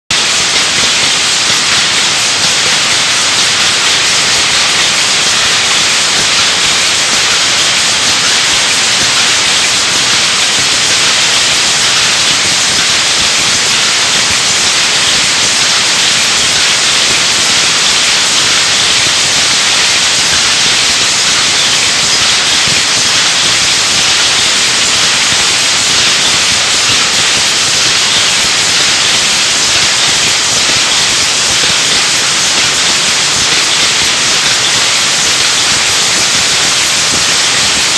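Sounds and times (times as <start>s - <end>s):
power looms running: 0.1s - 37.9s.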